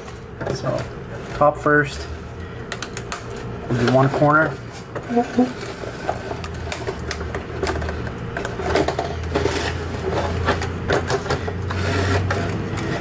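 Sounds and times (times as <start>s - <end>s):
plastic crackling and clicking: 6.4s - 9.3s.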